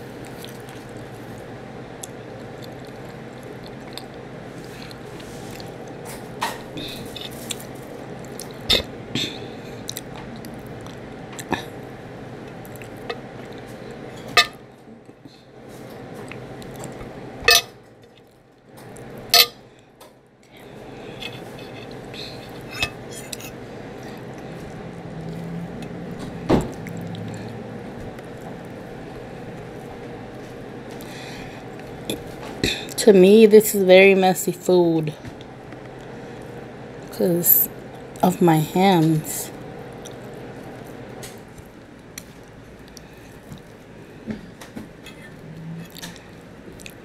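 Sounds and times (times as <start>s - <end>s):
background hum: 0.0s - 47.0s
chewing: 0.2s - 6.0s, 6.8s - 8.9s, 9.8s - 11.8s, 12.4s - 14.0s, 20.4s - 25.9s, 39.9s - 43.8s, 45.0s - 47.0s
fork clinking on plate: 19.4s - 19.6s.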